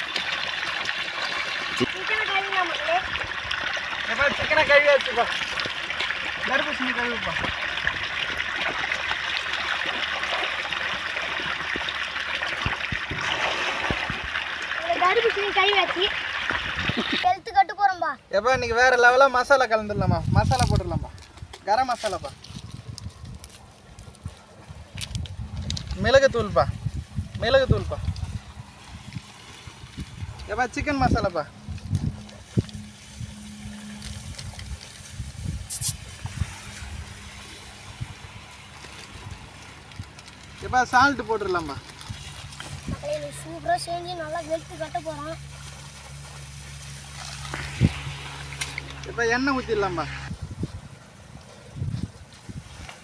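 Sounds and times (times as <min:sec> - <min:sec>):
water trickling: 0:00.0 - 0:17.3, 0:25.0 - 0:50.3
paper packet crinkling: 0:20.5 - 0:26.1, 0:38.3 - 0:43.5.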